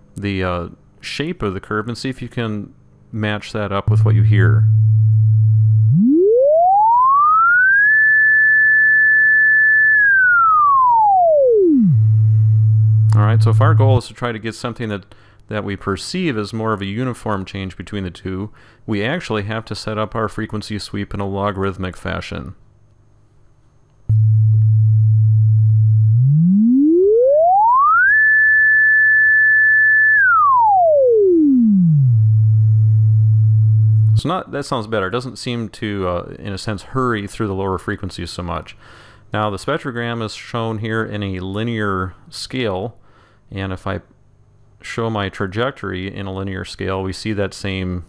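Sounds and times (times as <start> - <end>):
sine tone sweeping in pitch: 3.8 - 14.0, 24.1 - 34.2.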